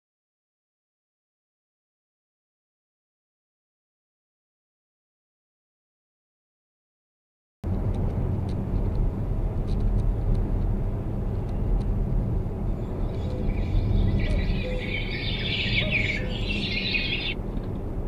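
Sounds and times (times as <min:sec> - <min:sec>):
car road and engine rumble: 0:07.6 - 0:18.0
high wavering chirping: 0:12.7 - 0:17.4.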